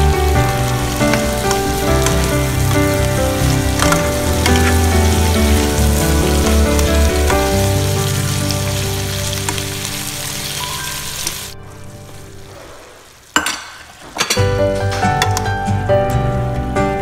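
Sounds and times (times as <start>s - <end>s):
vegetables sizzling in a frying pan: 0.0s - 13.4s
background music: 0.0s - 17.0s.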